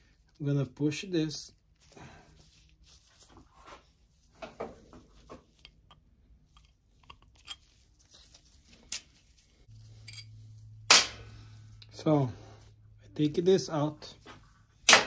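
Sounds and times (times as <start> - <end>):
clicks taps and crinkles: 4.3 - 9.3
low steady hum: 5.2 - 13.5.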